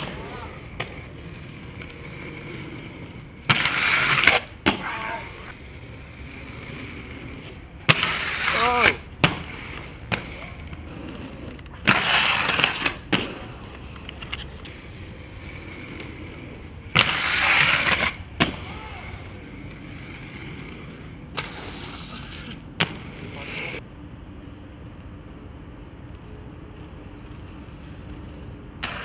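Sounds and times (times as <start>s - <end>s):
inline skates grinding slide: 0.0s - 23.8s, 26.8s - 29.0s
skates clacking: 0.0s - 23.8s, 27.1s - 29.0s.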